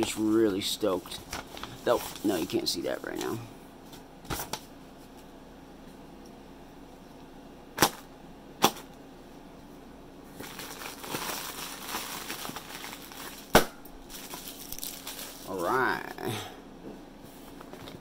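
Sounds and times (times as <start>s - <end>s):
plastic air pillows crinkling: 0.0s - 5.3s, 10.3s - 16.0s.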